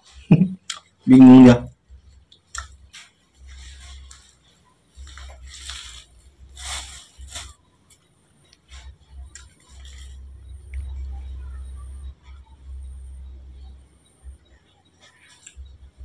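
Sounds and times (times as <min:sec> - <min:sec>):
faint rustling and handling: 0:02.0 - 0:11.0.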